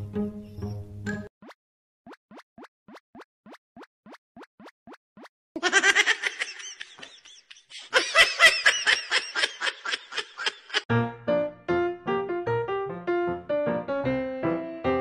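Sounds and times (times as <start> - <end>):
rising plop sound effects: 1.4 - 5.3
laughter: 5.6 - 10.9.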